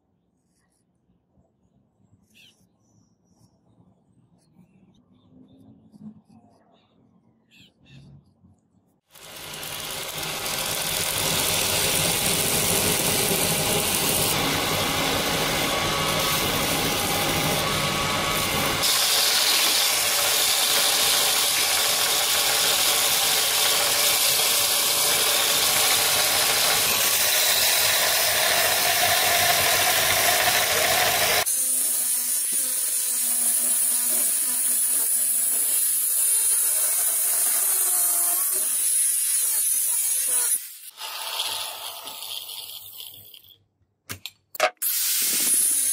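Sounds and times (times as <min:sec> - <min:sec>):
angle grinder whine: 0:09.1 - 0:34.7
belt sander grinding metal: 0:09.1 - 0:43.6.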